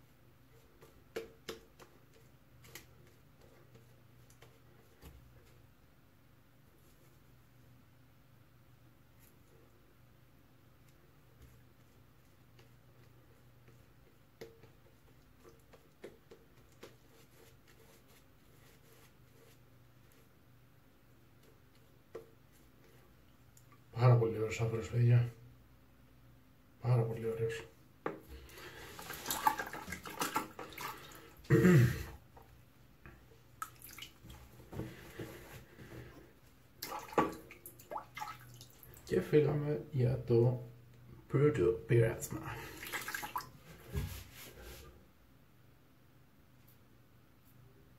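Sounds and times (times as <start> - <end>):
water splashing in a sink: 28.9 - 31.3, 33.6 - 34.5, 36.8 - 39.1, 42.6 - 43.6.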